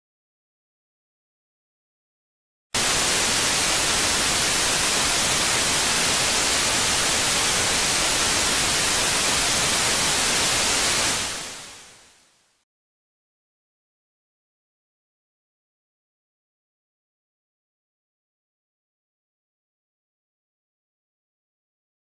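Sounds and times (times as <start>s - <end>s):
television static hiss: 2.8s - 12.6s.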